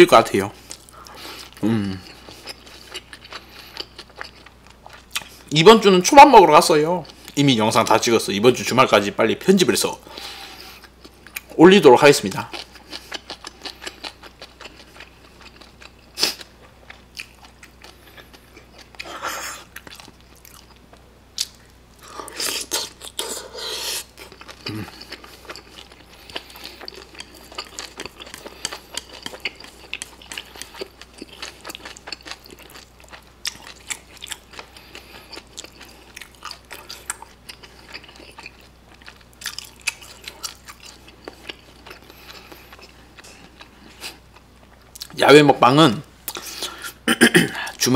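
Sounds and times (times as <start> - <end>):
close chewing and biting: 0.7 - 5.5, 12.5 - 44.2.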